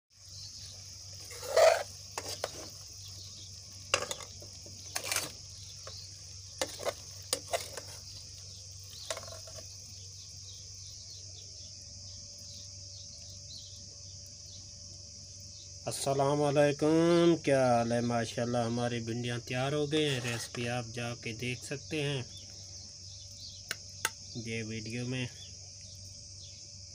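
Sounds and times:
crickets chirring: 0.1s - 26.9s
spoon scraping a cooking pan: 0.6s - 9.8s, 19.9s - 20.7s.

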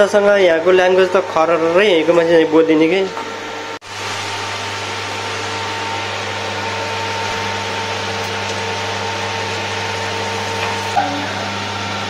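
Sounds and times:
electrical hum: 0.0s - 12.0s
batter sizzling in hot oil: 3.8s - 11.8s.

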